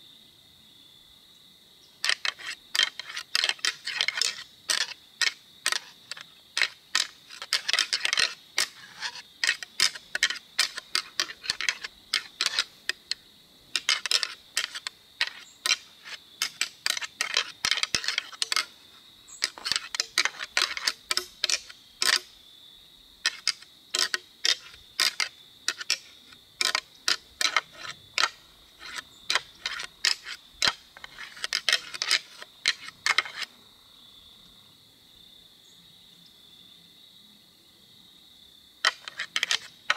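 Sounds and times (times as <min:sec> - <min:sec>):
antlers rattling together: 0:02.0 - 0:22.3, 0:23.2 - 0:33.5, 0:38.8 - 0:39.9.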